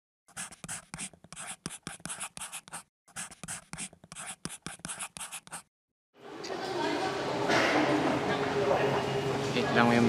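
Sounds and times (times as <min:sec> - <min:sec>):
pen writing on paper: 0:00.3 - 0:05.7.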